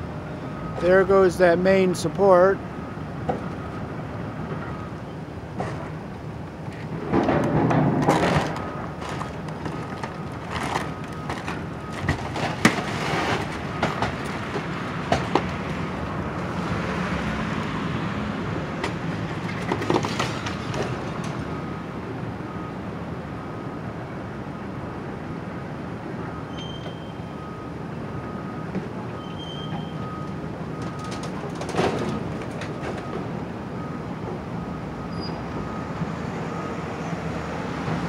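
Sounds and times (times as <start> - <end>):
debris cracking and falling: 7.0 - 14.6.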